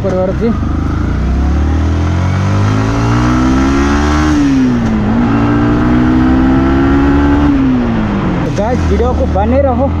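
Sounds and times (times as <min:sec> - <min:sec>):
motorcycle engine accelerating: 0:00.0 - 0:10.0.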